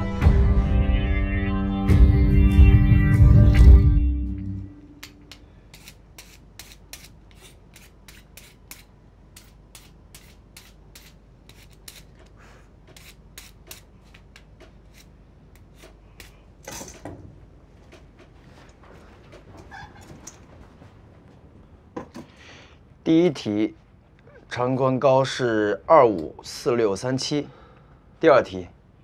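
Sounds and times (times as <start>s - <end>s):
rustling scrape: 5.7s - 12.3s.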